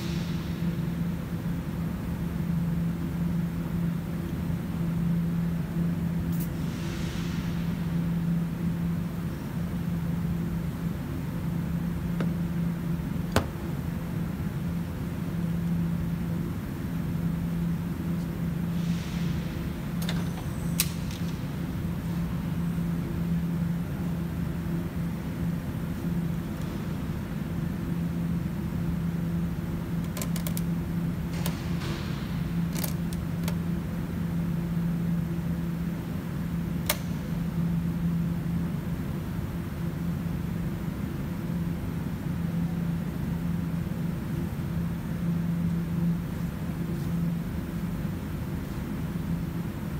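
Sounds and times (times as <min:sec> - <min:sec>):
workshop machinery hum: 0:00.0 - 0:49.9.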